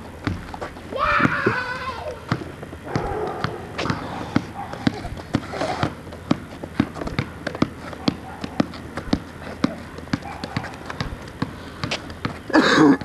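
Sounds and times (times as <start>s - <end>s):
basketball bouncing on asphalt: 0.0s - 13.0s
voices: 0.9s - 6.0s.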